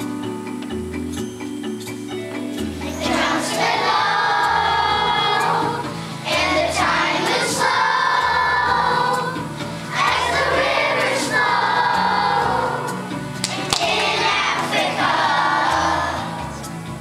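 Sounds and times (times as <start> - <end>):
instrumental accompaniment: 0.0 - 17.0
children's choir singing: 2.8 - 17.0.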